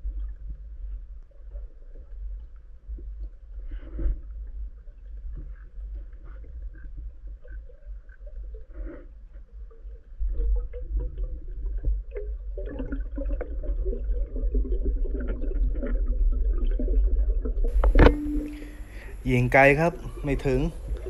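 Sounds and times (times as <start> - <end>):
underwater rumble of moving water: 0.0 - 21.0
crackling clicks: 17.7 - 19.2.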